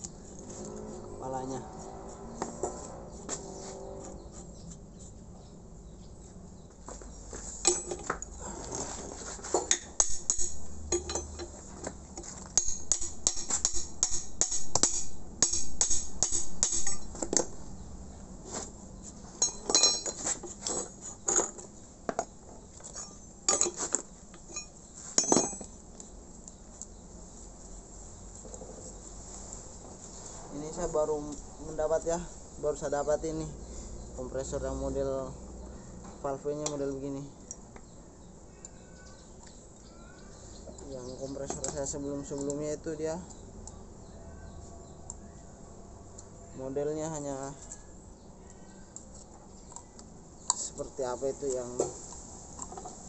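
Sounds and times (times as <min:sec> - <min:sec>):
wrench clinking on metal nuts: 0:07.6 - 0:08.3, 0:09.6 - 0:11.6, 0:12.6 - 0:17.4, 0:19.4 - 0:21.6, 0:22.9 - 0:23.8, 0:24.4 - 0:25.8.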